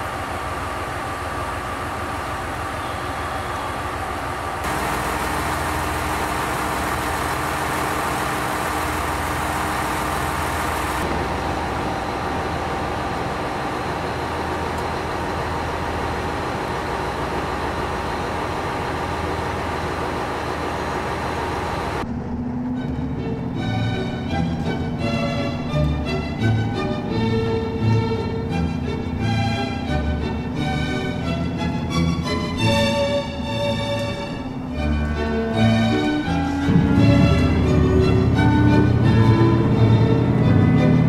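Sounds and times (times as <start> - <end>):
diesel railcar engines idling: 0.0 - 41.0
light string tune: 22.6 - 41.0.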